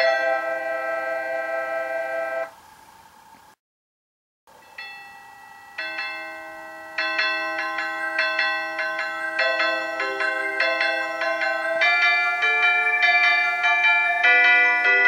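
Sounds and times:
electronic chime melody: 4.6s - 15.0s.

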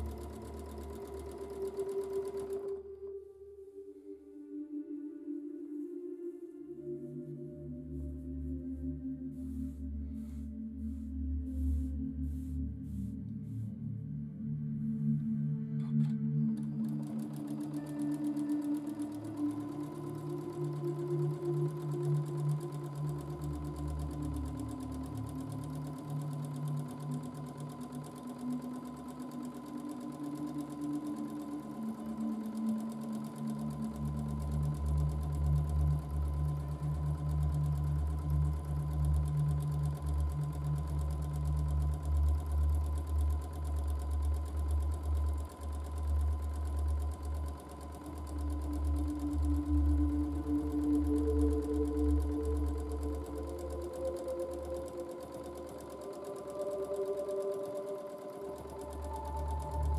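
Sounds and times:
sewing machine stitching: 0.0s - 3.1s, 15.8s - 59.9s.

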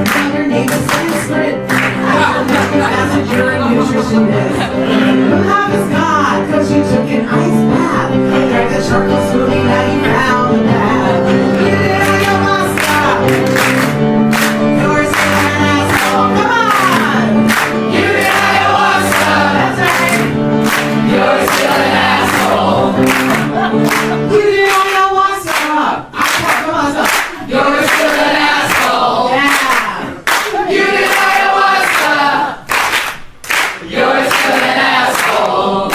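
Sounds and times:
woman singing into microphone: 0.0s - 13.4s, 14.8s - 17.4s
sustained backing chords: 0.0s - 24.7s.

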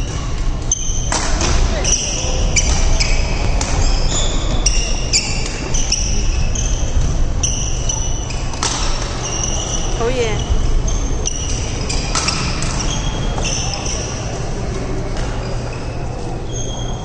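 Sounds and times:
rackets hitting shuttlecock: 0.0s - 6.2s, 11.3s - 13.5s
low hum of hall: 0.0s - 17.0s
sneakers squeaking on court: 0.0s - 17.0s.

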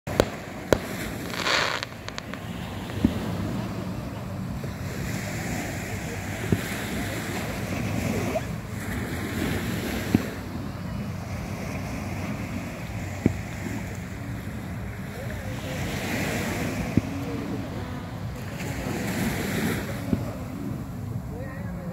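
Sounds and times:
distant fireworks booming: 0.1s - 3.6s
small waves on shore: 0.1s - 21.9s.

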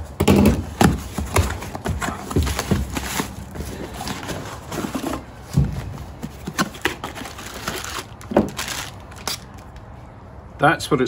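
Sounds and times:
cardboard and plastic rustling: 0.1s - 9.9s
dull thumps: 5.5s - 6.8s.

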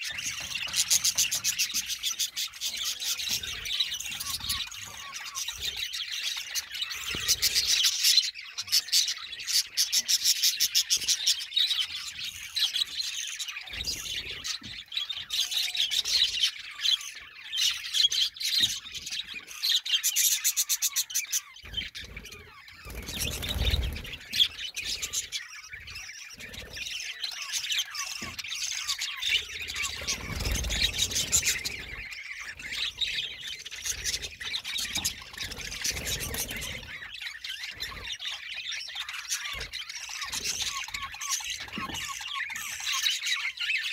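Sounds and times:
budgerigars chattering and chirping: 0.0s - 43.9s.

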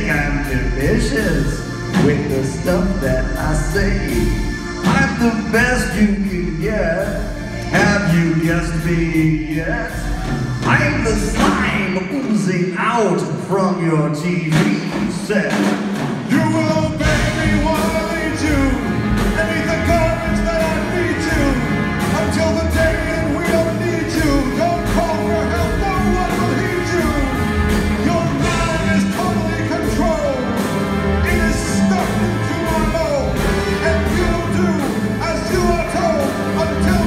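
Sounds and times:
live rock band playing: 0.0s - 37.0s
person singing: 16.3s - 37.0s.

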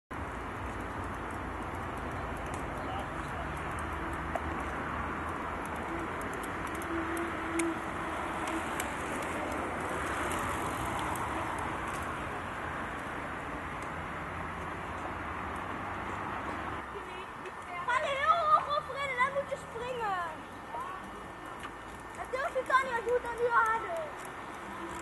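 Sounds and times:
bike tyres rolling on asphalt: 0.1s - 25.0s
light scattered ticks: 0.3s - 12.2s, 21.2s - 25.0s.

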